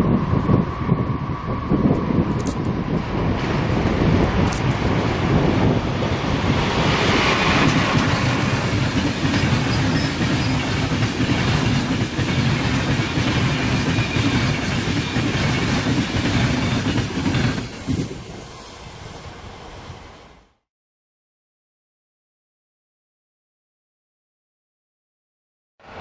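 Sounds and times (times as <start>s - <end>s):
passenger train passing: 0.0s - 20.6s.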